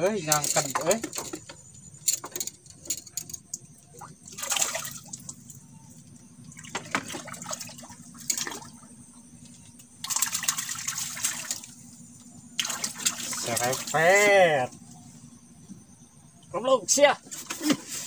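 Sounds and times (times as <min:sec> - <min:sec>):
fish splashing at water surface: 0:03.9 - 0:05.5, 0:06.5 - 0:09.0, 0:09.8 - 0:11.8, 0:12.6 - 0:14.2.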